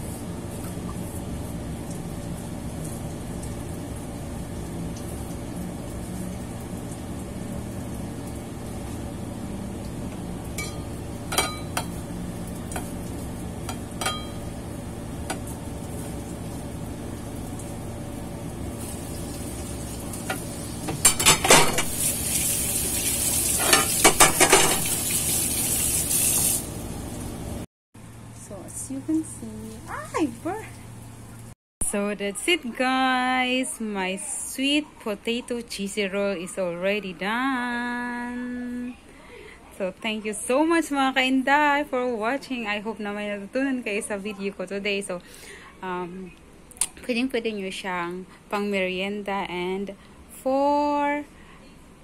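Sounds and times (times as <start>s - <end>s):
frying oil sizzling: 0.0s - 27.6s, 28.6s - 31.6s
metal bowls clinking: 10.6s - 12.0s, 13.7s - 14.5s.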